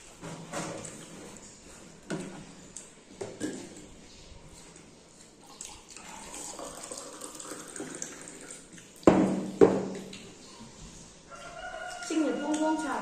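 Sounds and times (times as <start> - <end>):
water pouring into a glass: 5.6 - 9.0.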